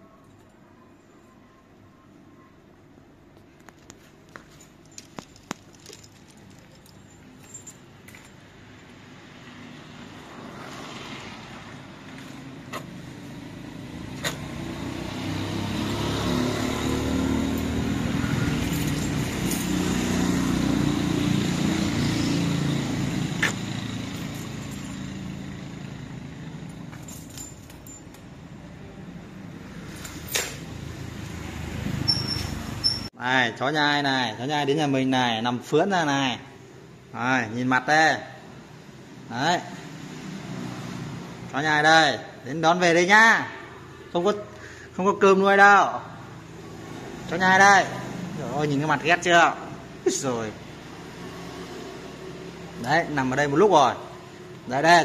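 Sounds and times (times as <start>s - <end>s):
light clinks: 3.7s - 8.5s, 26.6s - 28.4s.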